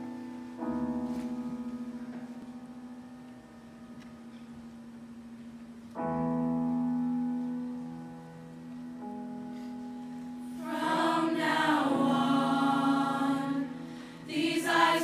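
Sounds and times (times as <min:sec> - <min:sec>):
children's choir singing: 0:10.6 - 0:15.0.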